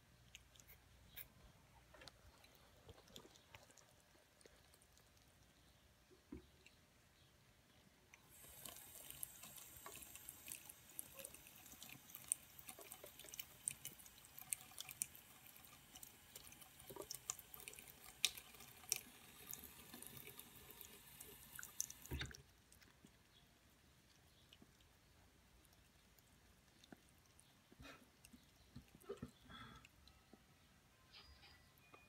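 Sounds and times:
tap water running into sink: 8.3s - 22.4s.

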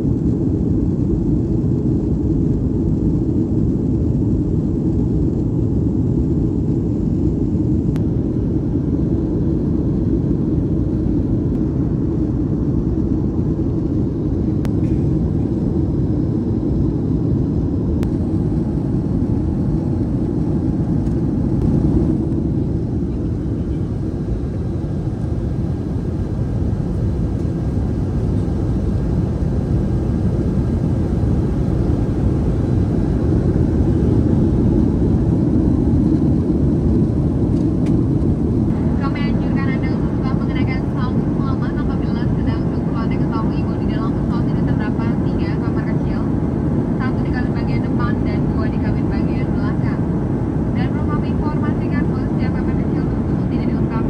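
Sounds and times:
aircraft cabin engine rumble: 0.0s - 54.0s.

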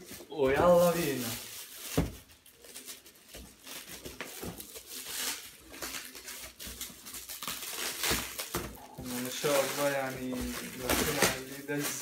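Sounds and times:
plastic wrap crinkling and tearing: 0.0s - 12.0s.

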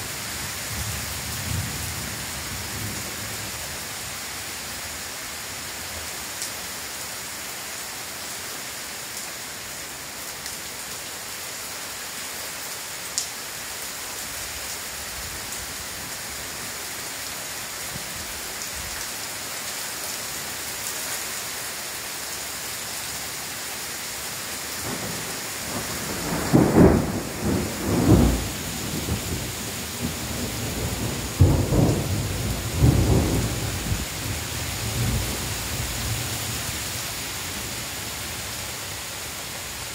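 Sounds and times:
heavy rain falling: 0.0s - 39.9s
thunder rumbling: 24.8s - 36.3s.

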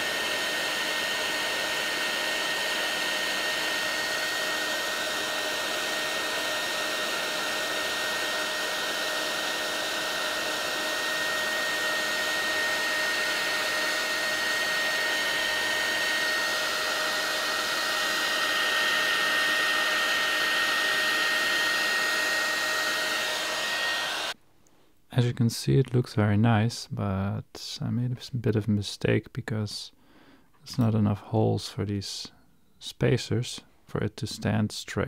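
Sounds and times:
heat gun blowing hot air: 0.0s - 24.4s.

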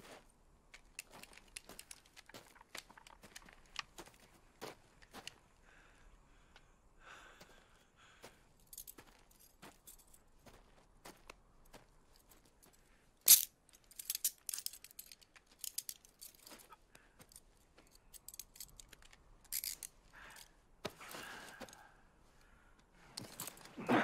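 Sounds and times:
handcuffs clicking and ratcheting: 0.7s - 4.0s, 12.6s - 20.5s.

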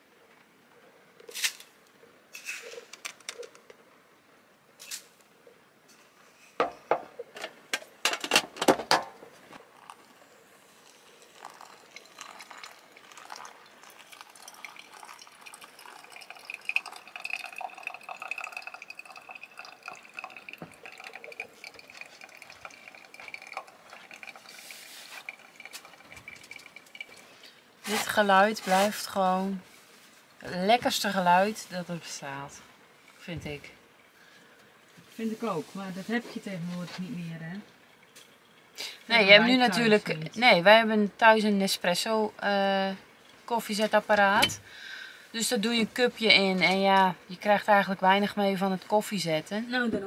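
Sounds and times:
hot water pouring onto coffee: 9.5s - 30.6s.

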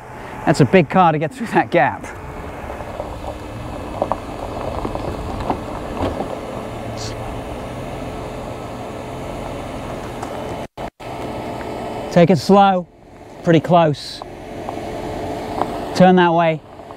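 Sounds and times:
truck engine at low revs: 0.0s - 16.9s
stones crunching under tyres: 2.0s - 11.8s, 14.2s - 16.9s.

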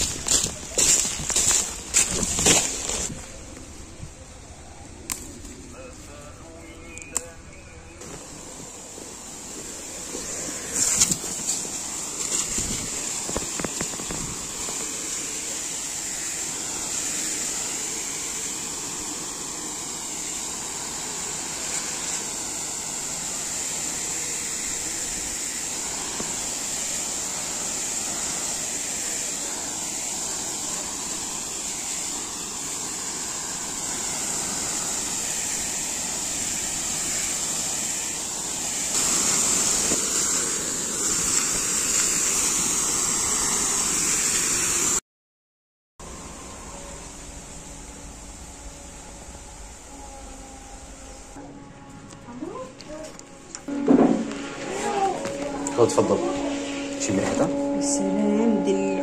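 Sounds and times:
sprayer wand hissing: 0.0s - 5.7s, 8.0s - 45.0s.

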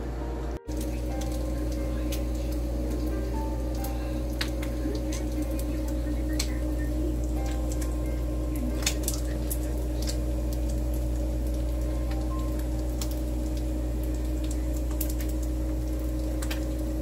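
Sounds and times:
low hum: 0.0s - 17.0s.

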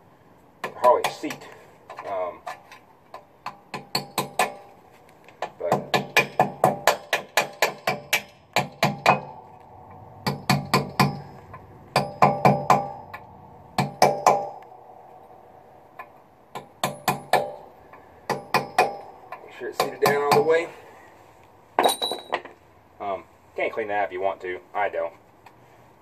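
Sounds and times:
hammer tapping on metal: 0.6s - 4.7s, 5.4s - 14.7s, 15.9s - 20.7s.

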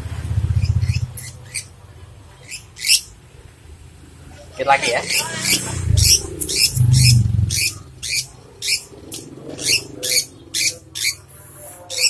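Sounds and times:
bird squawking harshly: 4.8s - 8.9s
low handling rumble: 5.2s - 11.6s.

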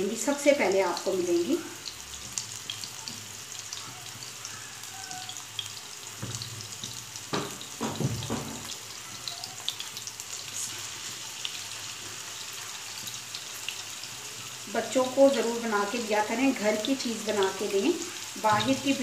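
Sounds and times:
meat sizzling in hot fat: 0.0s - 19.0s
loud knocks: 7.3s - 8.7s.

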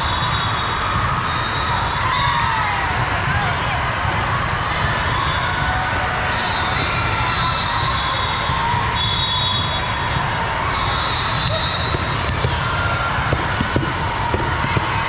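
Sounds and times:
volleyball slaps and bounces: 11.4s - 15.0s.

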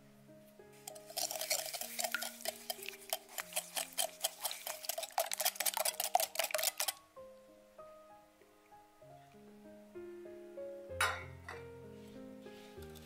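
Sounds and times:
whisk clicking against glass bowl: 0.9s - 7.0s.

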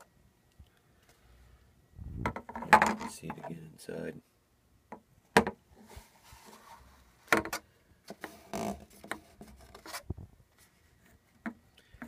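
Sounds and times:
plastic shell clicks and knocks: 2.2s - 3.5s.

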